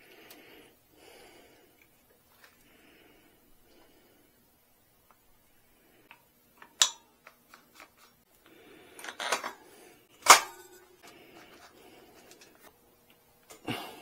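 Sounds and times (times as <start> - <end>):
wrench and metal parts clinking: 9.0 - 9.6.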